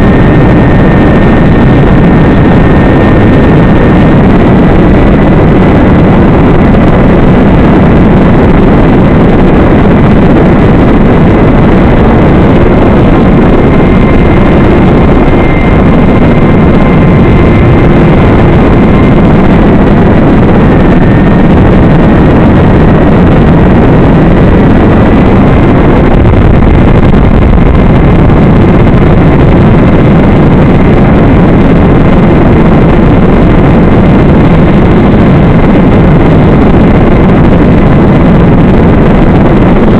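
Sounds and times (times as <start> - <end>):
faint wavering whine: 0.0 - 39.9
wind rushing: 0.0 - 39.9.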